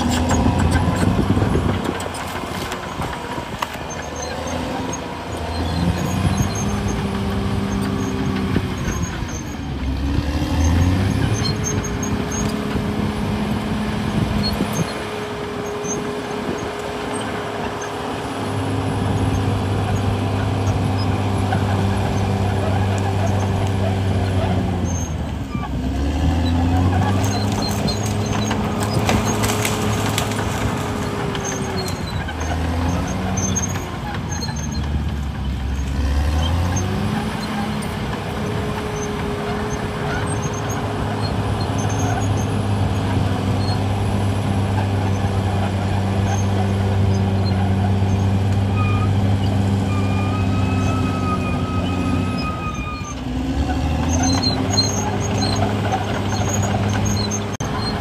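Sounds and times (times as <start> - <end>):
diesel engine working hard: 0.0 - 58.0
brief high squeal: 49.9 - 53.2.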